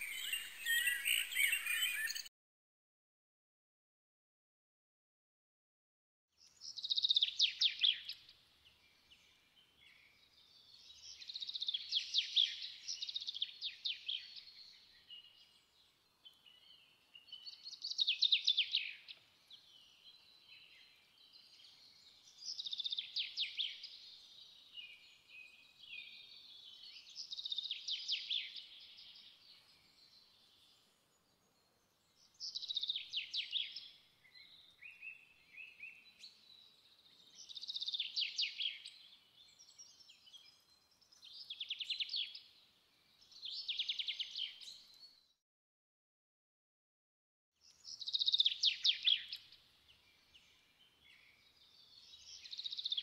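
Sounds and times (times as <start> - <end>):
songbird trilling: 0.0 - 2.2.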